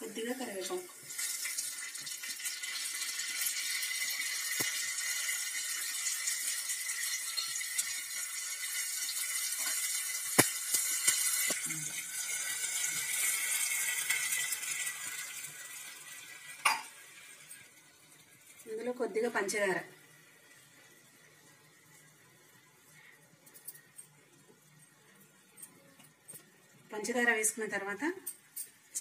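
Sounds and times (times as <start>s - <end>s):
chillies sizzling in a pan: 0.0s - 29.0s.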